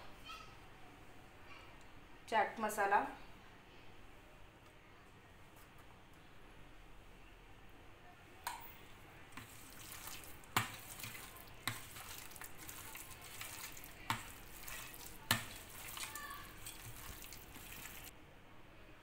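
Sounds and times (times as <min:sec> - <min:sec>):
hand squishing wet marinade: 0:09.3 - 0:18.1.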